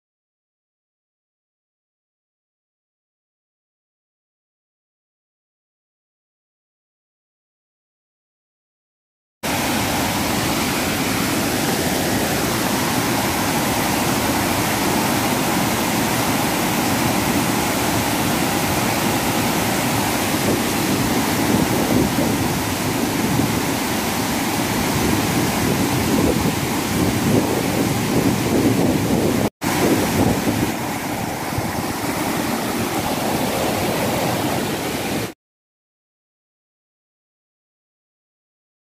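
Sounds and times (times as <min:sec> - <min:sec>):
torrent of water rushing: 0:09.4 - 0:35.4.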